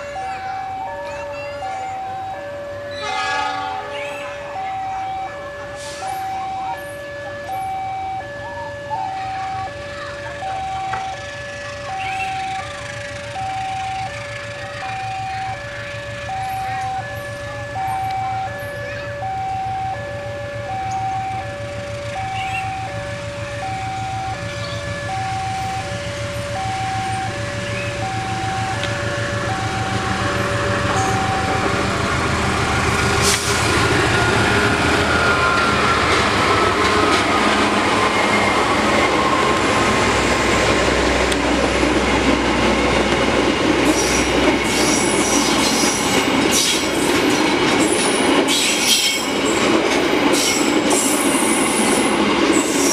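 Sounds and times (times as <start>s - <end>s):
level-crossing two-tone alarm: 0.0s - 41.3s, 43.7s - 52.9s
locomotive engine rumbling: 0.0s - 52.9s
train wheels clacking on rails: 21.8s - 52.9s
high wheel squeal: 26.6s - 31.9s, 43.8s - 47.2s, 47.8s - 49.6s, 50.3s - 52.9s.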